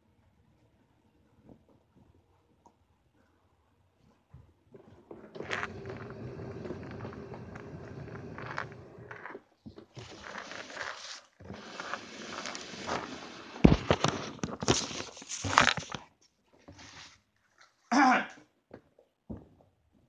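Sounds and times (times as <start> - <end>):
clothing rubbing on microphone: 4.2 - 16.0, 16.7 - 17.3.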